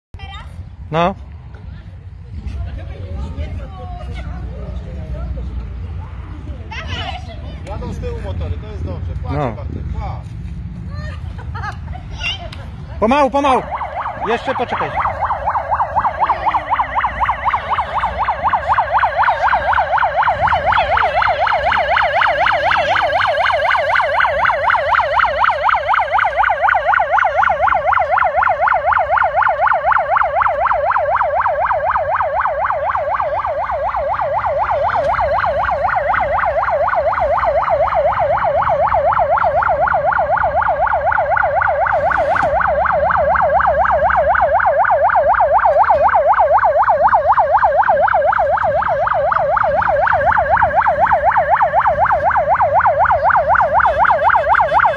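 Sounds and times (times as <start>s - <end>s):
electronic siren yelping: 13.0s - 54.9s.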